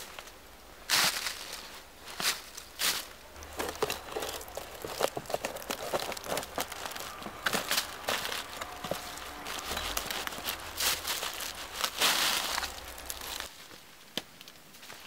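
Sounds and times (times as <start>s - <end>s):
bark cracking and tearing off log: 3.4s - 13.5s.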